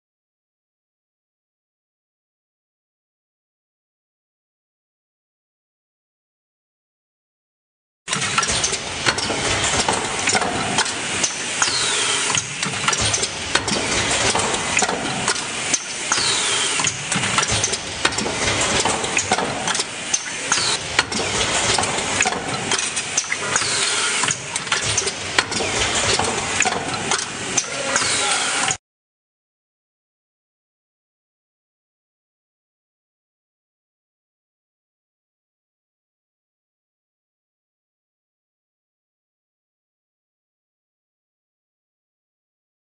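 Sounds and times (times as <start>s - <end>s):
mechanical clicks and knocks: 8.1s - 28.8s
press machine running: 8.1s - 28.8s.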